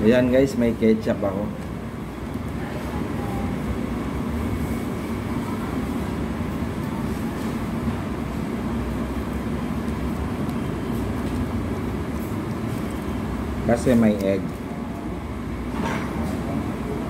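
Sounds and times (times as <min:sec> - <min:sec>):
faint constant hum: 0:00.0 - 0:17.0
low room rumble: 0:00.0 - 0:17.0.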